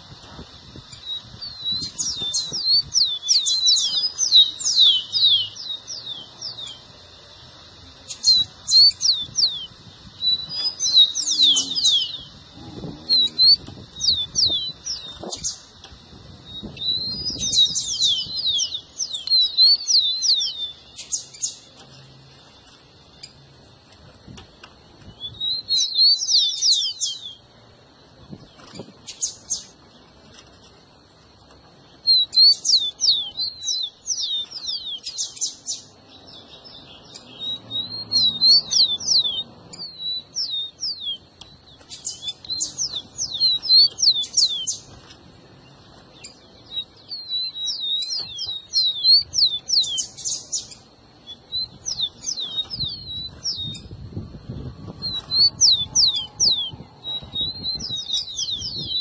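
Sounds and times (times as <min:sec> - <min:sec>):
sparrow singing high whistles: 0:00.8 - 0:06.9, 0:08.0 - 0:15.7, 0:16.4 - 0:21.6, 0:25.1 - 0:27.5, 0:32.0 - 0:41.3, 0:41.9 - 0:44.9, 0:46.2 - 0:53.9, 0:54.8 - 0:59.0.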